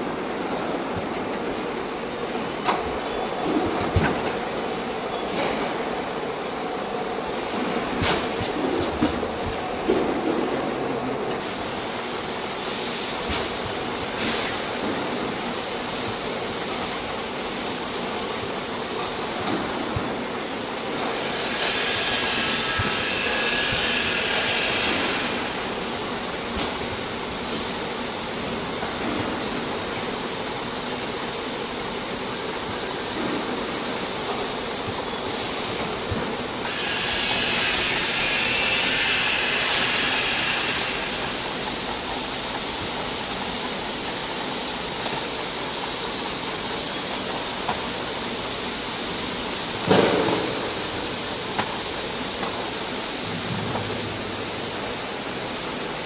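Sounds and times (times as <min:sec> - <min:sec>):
machinery hum and hiss: 0:00.0 - 0:56.0
loud hissing: 0:20.4 - 0:28.2, 0:35.4 - 0:42.2.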